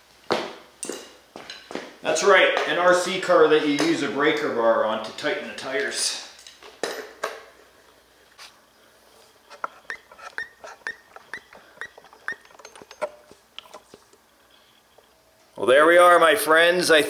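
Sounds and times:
primer bulb squeaky clicks: 0:09.5 - 0:14.2.

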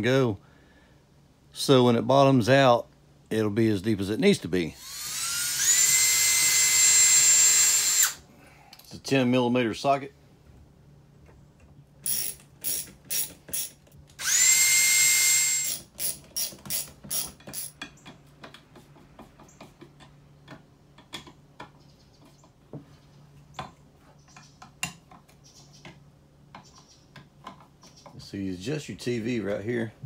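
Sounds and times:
cordless drill whining: 0:04.8 - 0:08.2, 0:12.0 - 0:17.7
drill clutch clicking: 0:04.8 - 0:08.2, 0:12.0 - 0:17.7
socket ratchet clicking: 0:12.0 - 0:14.4.

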